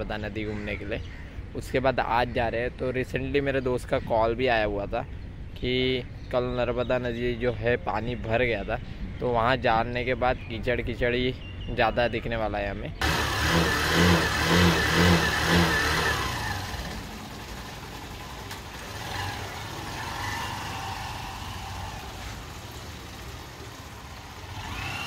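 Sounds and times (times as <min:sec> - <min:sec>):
road noise: 0:12.9 - 0:25.0
motorcycle engine revving: 0:13.0 - 0:25.0.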